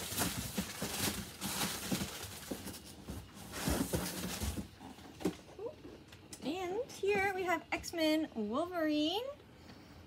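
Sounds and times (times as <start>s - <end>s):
boxes rustling and bumping: 0.0s - 5.6s.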